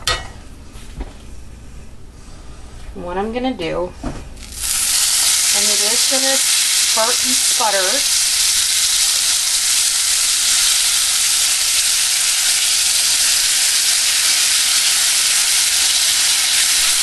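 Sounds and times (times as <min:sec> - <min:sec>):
caramel sizzling in a skillet: 0:04.4 - 0:17.0.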